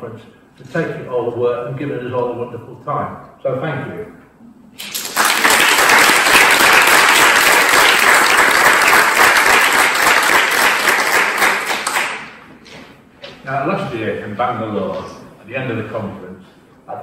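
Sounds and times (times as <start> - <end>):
audience applauding: 4.8 - 12.4.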